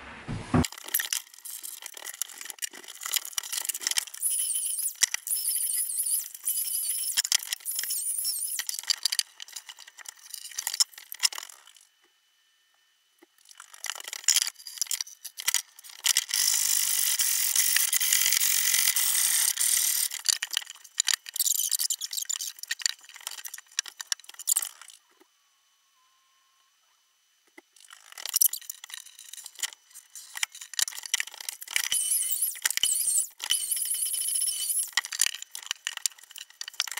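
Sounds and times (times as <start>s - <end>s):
wooden cabinet door scraping and rubbing: 0.0s - 0.6s.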